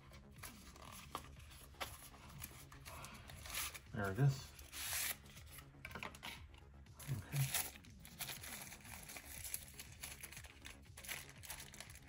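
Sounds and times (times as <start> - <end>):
plastic wrapping crinkling: 7.1 - 12.0.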